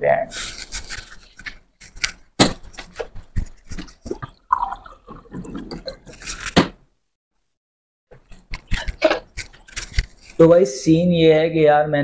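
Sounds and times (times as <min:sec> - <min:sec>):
water running: 0:02.6 - 0:06.4
person swallowing: 0:04.1 - 0:06.2.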